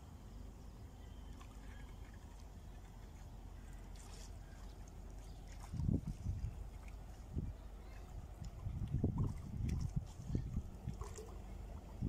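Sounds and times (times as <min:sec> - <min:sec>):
wind rumble on microphone: 0:05.3 - 0:12.0.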